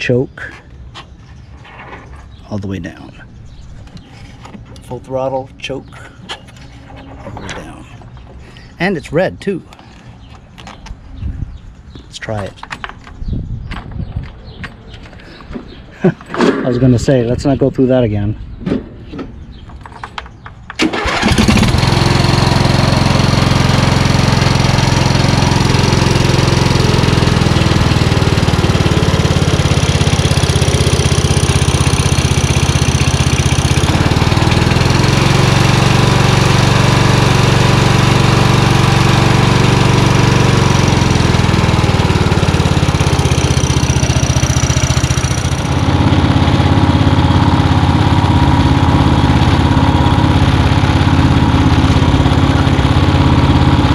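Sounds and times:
lawn tractor engine running: 20.0 - 53.9.

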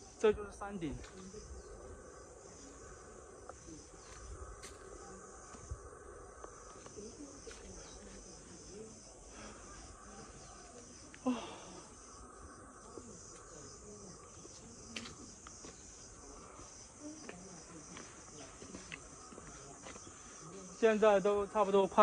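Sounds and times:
insects chirring: 0.0 - 22.0.

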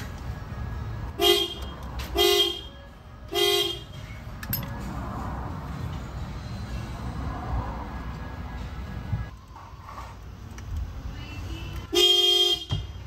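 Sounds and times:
car horn toots: 1.2 - 2.7.

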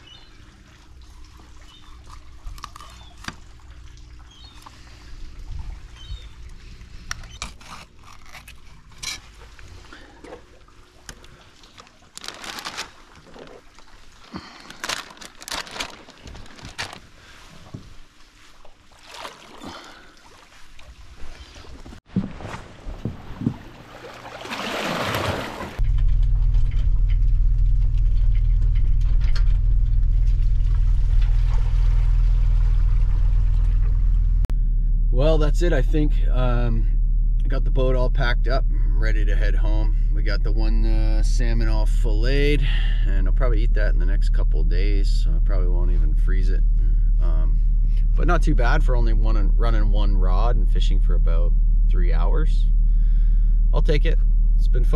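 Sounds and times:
wet rushes: 18.8 - 25.8
wet fish slapping and knocking: 21.6 - 25.8
car engine humming: 25.4 - 42.6.

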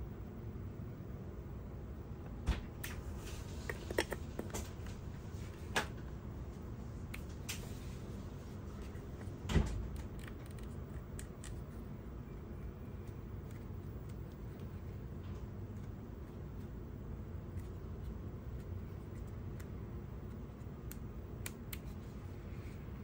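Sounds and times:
low background noise: 0.0 - 23.0.

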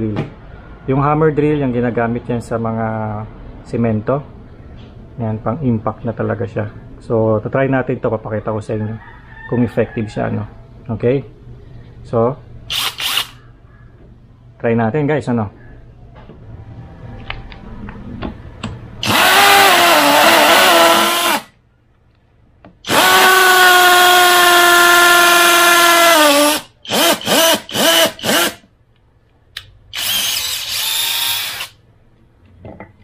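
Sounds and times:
drill boring into wood: 12.7 - 13.4, 19.0 - 21.5, 22.8 - 28.6, 29.9 - 31.8
drill trigger blips: 12.7 - 13.4, 19.0 - 21.5, 22.9 - 28.6, 29.6 - 31.8.

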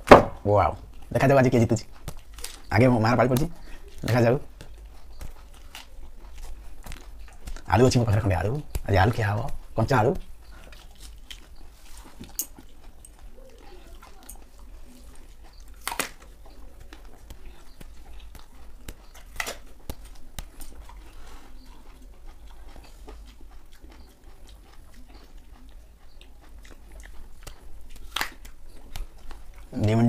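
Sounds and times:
apple crunching and chewing: 0.0 - 30.0.

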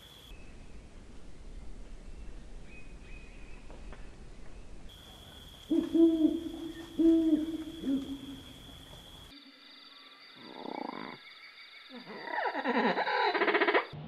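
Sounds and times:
owl hooting: 5.7 - 8.7.

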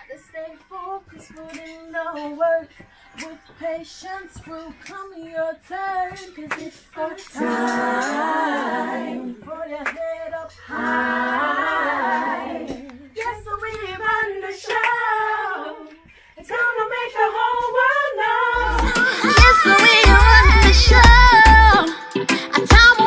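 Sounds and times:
women singing unaccompanied: 0.0 - 23.0
reggae track with heavy bass: 18.6 - 23.0.

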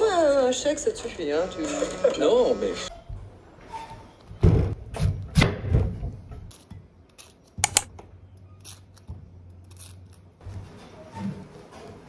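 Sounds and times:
sharp clicks: 7.6 - 7.9.

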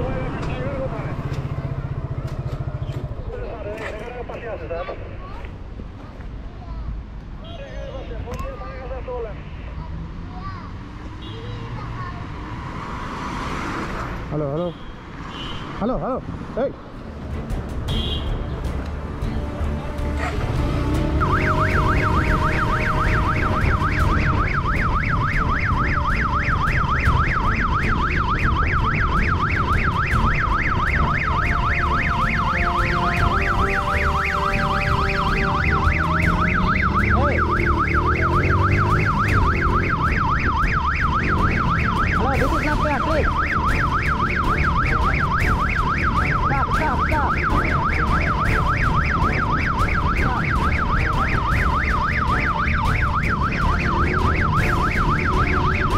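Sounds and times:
motorcycle engine rumble: 0.0 - 4.3
wind: 0.0 - 55.9
electronic siren warbling: 21.0 - 55.9.

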